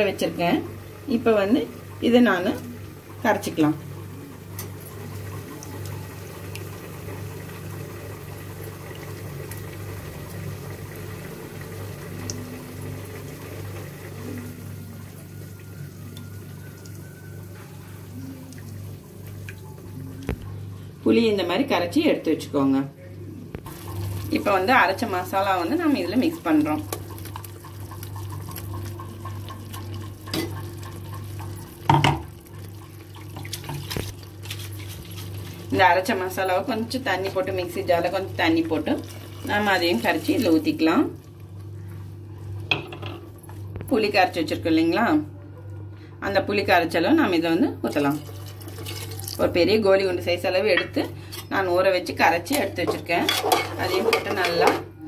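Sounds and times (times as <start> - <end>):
spoon scraping metal pot: 53.2 - 54.6.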